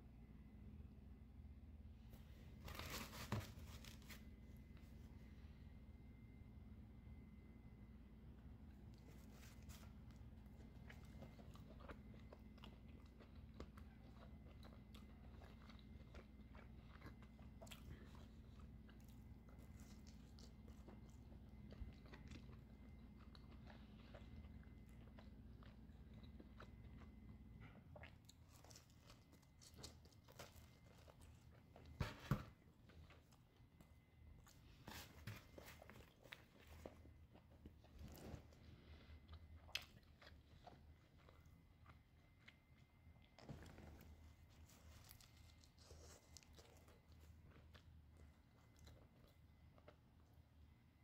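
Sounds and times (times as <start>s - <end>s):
low steady hum: 0.0s - 51.0s
person chewing pizza: 8.4s - 51.0s.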